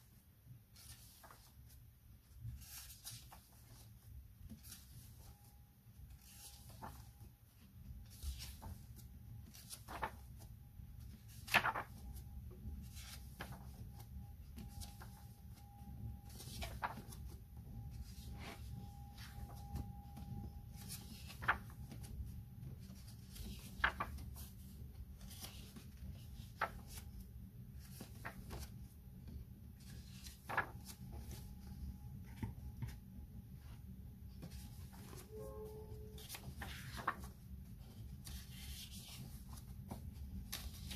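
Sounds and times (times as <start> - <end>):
paper pages rustling: 0.1 - 40.9
page flapping: 8.0 - 12.2, 12.8 - 15.3, 16.2 - 17.4, 20.8 - 31.5, 36.1 - 40.9.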